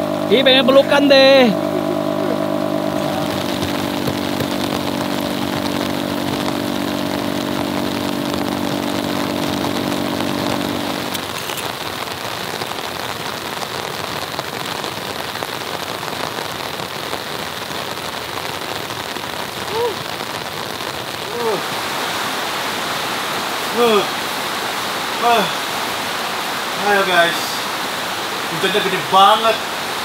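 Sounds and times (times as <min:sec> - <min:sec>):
motor humming: 0:00.0 - 0:11.2
heavy rain falling: 0:00.0 - 0:30.0.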